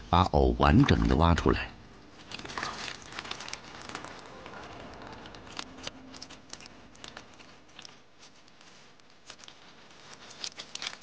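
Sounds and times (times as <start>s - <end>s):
soft clicks and crackles: 2.0s - 11.0s
hands working wet mud: 2.2s - 4.3s, 5.2s - 11.0s.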